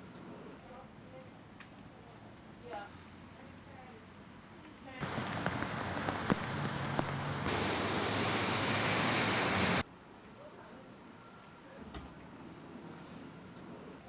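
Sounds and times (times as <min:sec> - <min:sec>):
rushing outdoor noise: 0:02.5 - 0:10.2.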